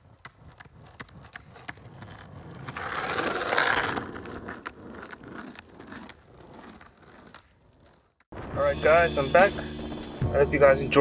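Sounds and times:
wheels rolling on pavement: 0:00.0 - 0:08.5.

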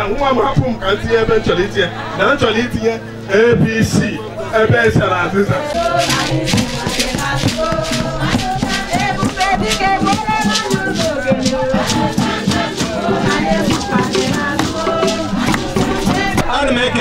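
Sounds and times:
upbeat music: 0:03.9 - 0:17.0
shaker beat: 0:05.0 - 0:17.0.

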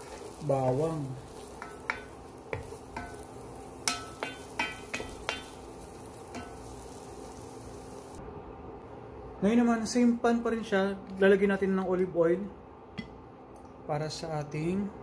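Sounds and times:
egg sizzling: 0:00.0 - 0:08.2
wooden spatula knocking on pot: 0:01.6 - 0:03.2, 0:03.9 - 0:05.6.

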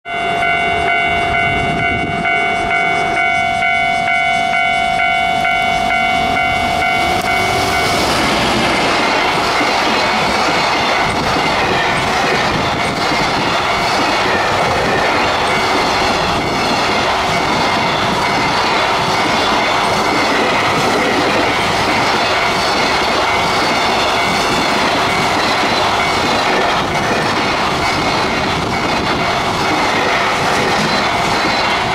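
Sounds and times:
train wheels clattering over rail joints: 0:07.2 - 0:31.9.

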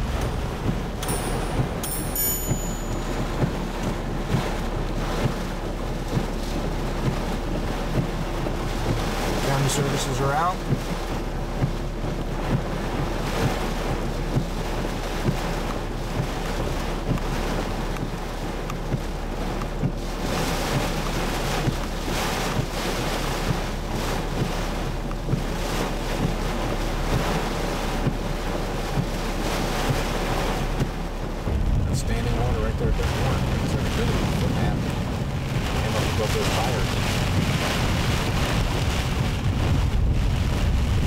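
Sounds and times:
windshield wipers knocking: 0:00.0 - 0:40.9
heavy rain on a car roof: 0:00.0 - 0:41.0
wind: 0:00.0 - 0:41.0.

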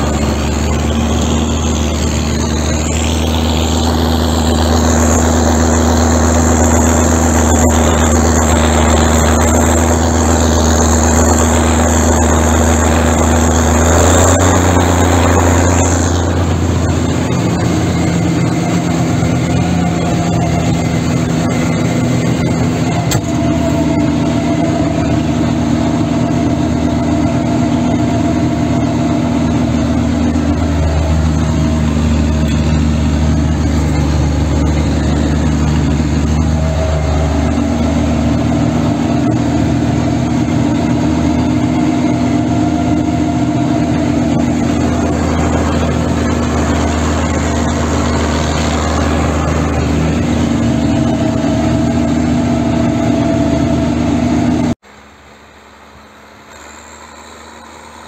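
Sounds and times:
snow blower throwing snow: 0:00.0 - 0:58.0
tractor diesel engine under load: 0:00.0 - 0:58.0.

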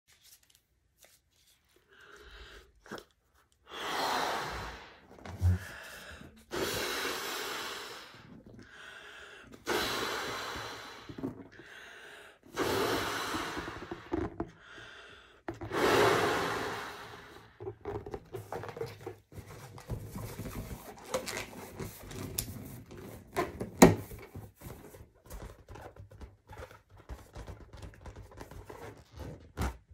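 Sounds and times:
balloon being blown up by mouth: 0:03.7 - 0:08.6, 0:12.5 - 0:14.6, 0:15.5 - 0:18.2.

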